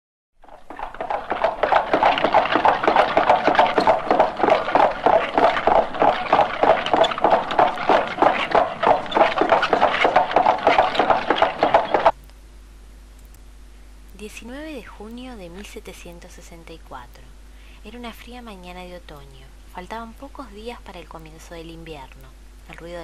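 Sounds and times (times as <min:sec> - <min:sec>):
horse hooves clattering: 0:00.4 - 0:12.2.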